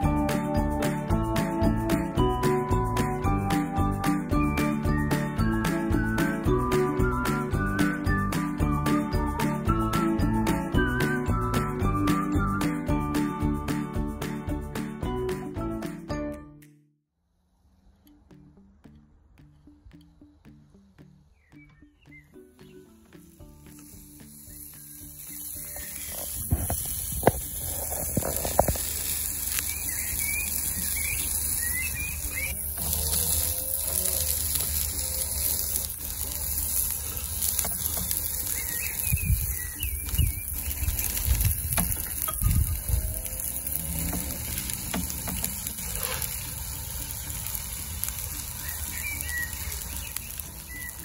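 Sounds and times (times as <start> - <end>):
birds chirping: 21.2 - 23.1, 23.8 - 26.5, 29.3 - 33.1, 36.2 - 46.5, 48.2 - 51.0
meat sizzling on a grill: 22.6 - 51.0.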